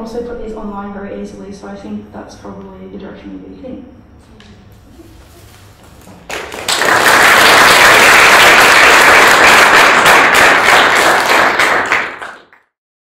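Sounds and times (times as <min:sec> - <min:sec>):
audience applauding: 0:06.1 - 0:12.7.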